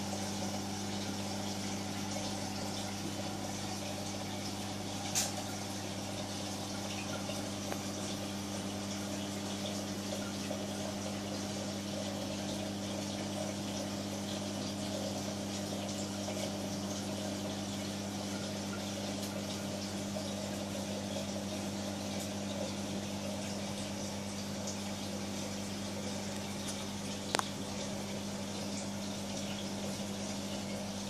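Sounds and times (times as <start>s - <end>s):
aquarium pumps humming: 0.0s - 31.0s.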